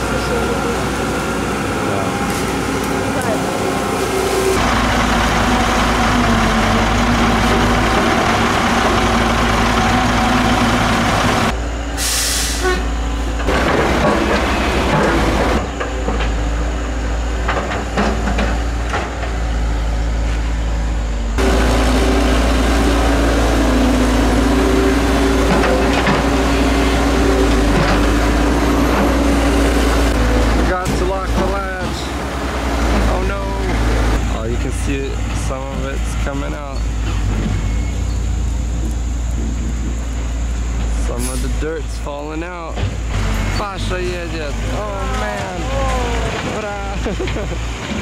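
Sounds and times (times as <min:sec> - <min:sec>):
diesel engines running: 0:00.0 - 0:48.0
short hiss of air: 0:12.0 - 0:12.7.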